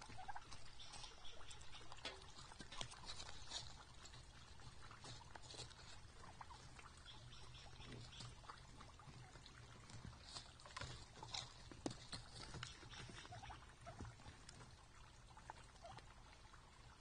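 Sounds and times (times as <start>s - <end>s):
turkeys pecking at seed: 0.0s - 17.0s
feet scratching in dry leaves: 0.5s - 6.9s.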